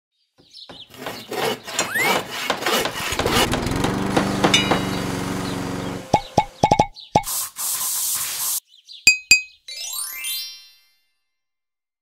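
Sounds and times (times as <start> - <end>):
buzzing motor drone: 3.1 - 6.4.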